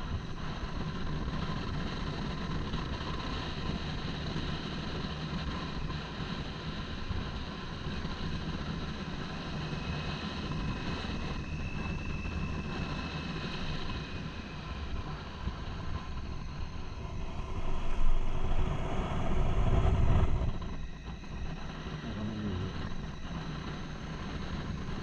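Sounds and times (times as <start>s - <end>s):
wind noise: 0.0s - 22.0s
road noise: 14.7s - 20.8s.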